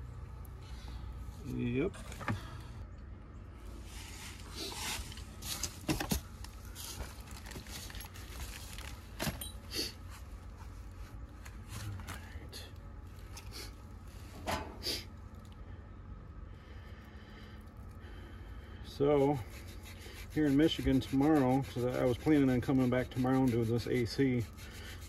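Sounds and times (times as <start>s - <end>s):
steady low rumble: 0.0s - 19.6s
plastic bag rustling: 4.0s - 9.4s.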